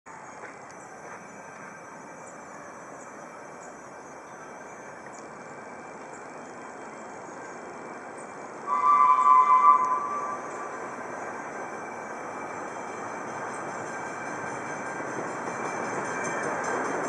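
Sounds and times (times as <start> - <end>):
locomotive whistle two-note chord: 8.6 - 11.2.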